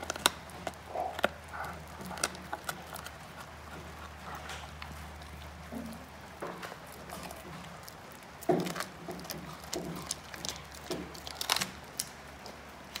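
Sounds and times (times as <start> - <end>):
dog crunching bone: 0.0 - 13.0.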